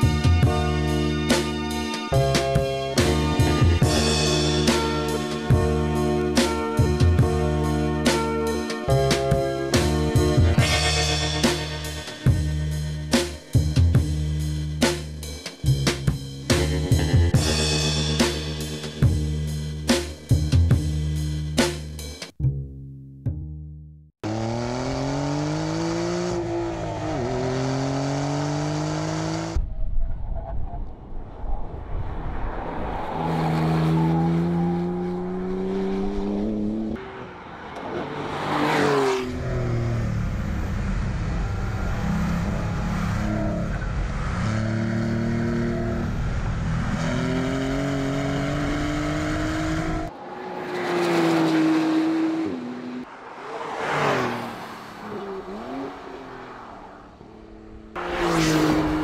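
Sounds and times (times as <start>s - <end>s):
car engine accelerating hard: 24.2s - 29.6s, 32.9s - 59.0s
car passing by: 24.8s - 59.0s.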